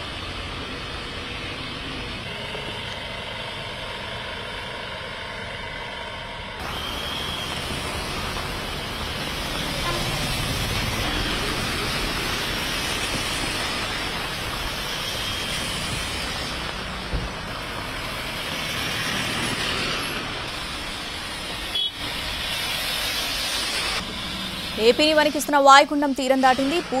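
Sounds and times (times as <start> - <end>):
traffic on wet roads: 0.0 - 27.0
rain hiss: 6.6 - 27.0.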